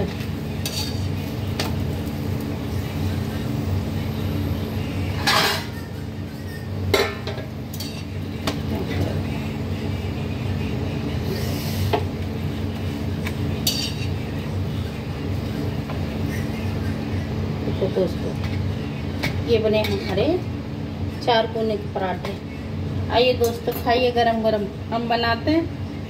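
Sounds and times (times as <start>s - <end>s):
steady low hum: 0.0s - 26.0s
tongs clinking on metal griddle: 0.6s - 1.7s, 5.2s - 8.1s, 13.6s - 14.2s.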